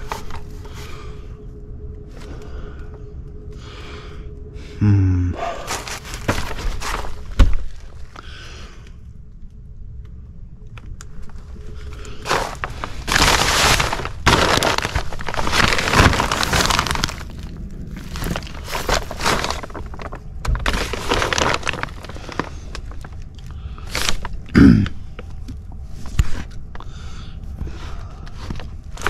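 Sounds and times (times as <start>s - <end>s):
plastic sheeting crinkling: 5.7s - 8.1s, 11.9s - 24.4s.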